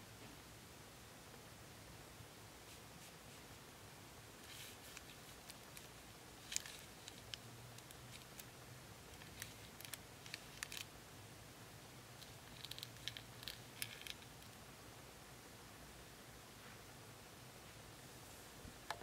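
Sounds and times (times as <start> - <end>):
fingertips tapping on foil wrappers: 4.5 - 8.5, 9.2 - 10.9, 12.2 - 14.5.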